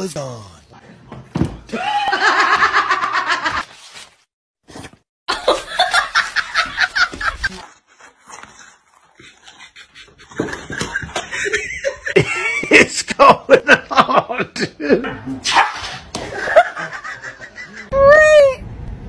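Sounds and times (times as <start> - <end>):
people laughing: 1.7 - 3.6, 5.3 - 7.6, 9.4 - 15.1, 16.2 - 18.0.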